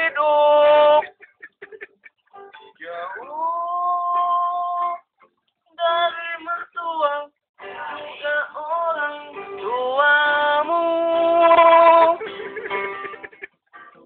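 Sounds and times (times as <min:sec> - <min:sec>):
person singing wordless melody: 0:00.0 - 0:01.2, 0:02.4 - 0:12.5.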